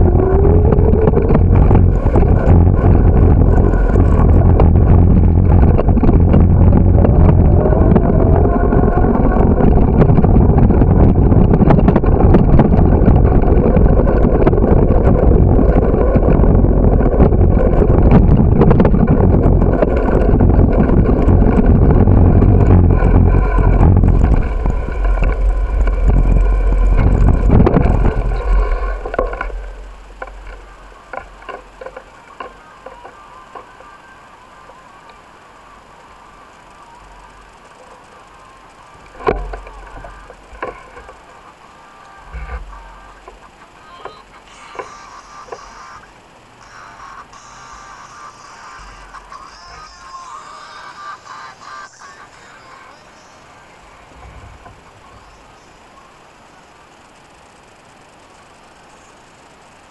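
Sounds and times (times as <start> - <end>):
wind buffeting microphone: 0.0 - 33.5
bicycle rattling over pavement: 0.0 - 43.7.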